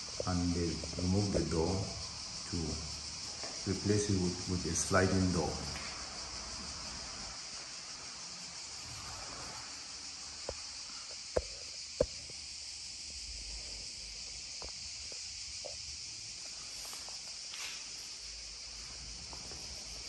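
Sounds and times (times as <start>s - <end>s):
steady high hiss: 0.0s - 20.0s
footsteps on tiled floor: 8.6s - 20.0s.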